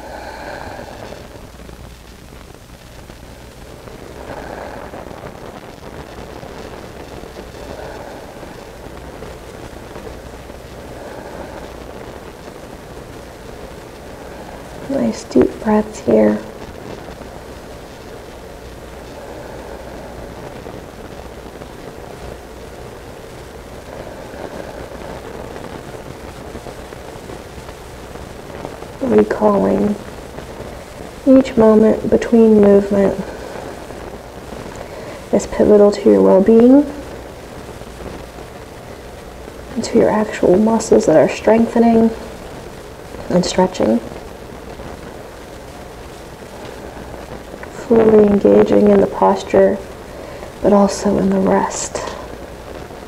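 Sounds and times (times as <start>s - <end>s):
person breathing deeply: 0.0s - 1.5s, 3.4s - 5.6s, 7.5s - 10.0s, 10.7s - 12.6s, 13.6s - 14.9s, 18.9s - 21.1s, 23.7s - 25.8s, 33.2s - 35.3s, 50.0s - 50.6s
low room hum: 0.0s - 53.0s.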